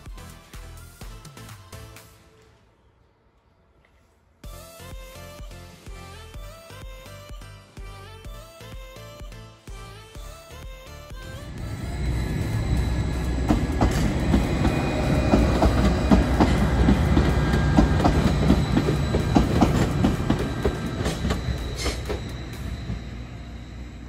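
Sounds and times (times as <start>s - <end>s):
low train engine hum: 11.0s - 24.0s
train wheels clicking over rail joints: 11.7s - 23.2s.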